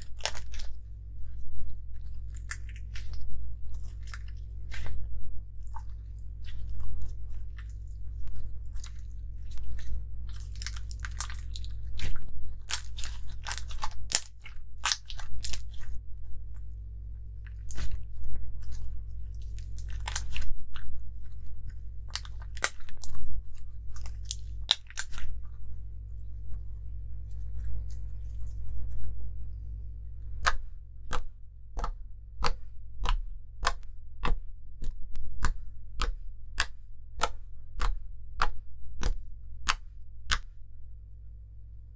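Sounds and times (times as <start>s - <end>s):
slime squeezed wet crackles: 0.0s - 0.8s, 8.8s - 15.8s, 18.6s - 20.5s, 22.1s - 25.4s
steady low hum: 0.0s - 41.9s.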